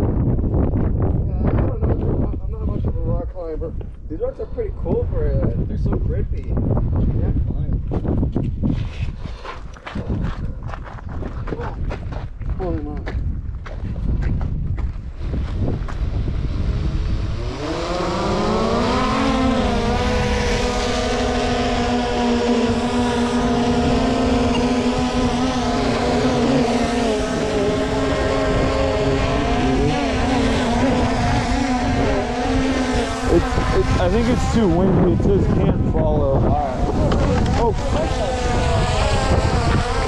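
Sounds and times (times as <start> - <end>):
wind rumble on microphone: 0.0 - 40.0
drone propellers whining: 15.2 - 40.0.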